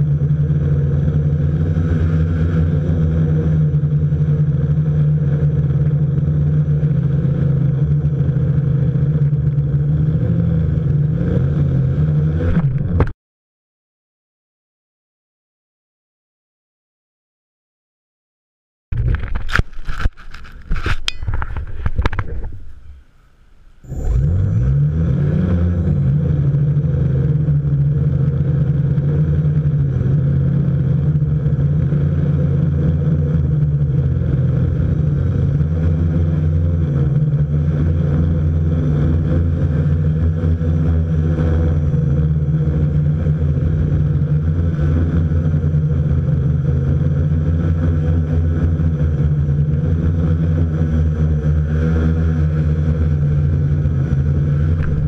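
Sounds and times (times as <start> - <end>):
drone propellers whirring: 20.6 - 27.6.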